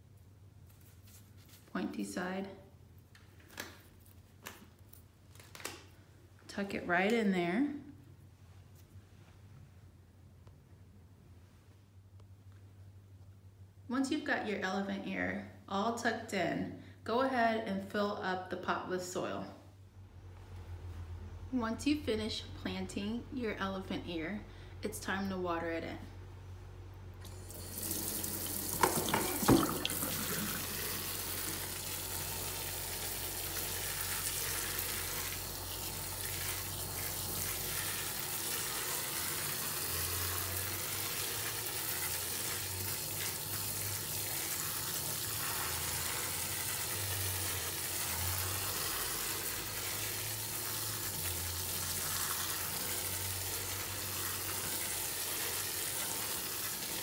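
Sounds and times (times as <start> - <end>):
faucet sprayer running: 27.2 - 57.0.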